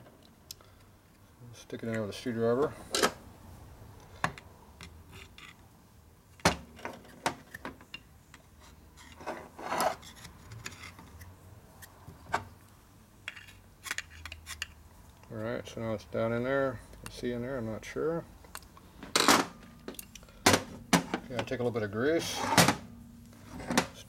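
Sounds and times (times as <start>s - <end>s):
screwdriver clicking and scraping metal: 7.0s - 12.0s, 13.3s - 14.8s.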